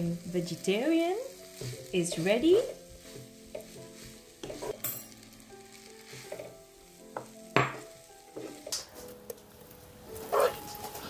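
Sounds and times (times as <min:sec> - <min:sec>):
light sizzle: 0:00.0 - 0:11.0
wooden spatula scraping a pan: 0:00.4 - 0:09.1.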